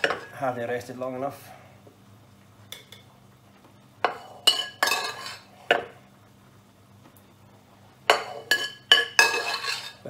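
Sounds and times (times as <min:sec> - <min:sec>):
metal spoon clinking on cookware: 0:04.0 - 0:05.4, 0:08.1 - 0:10.0.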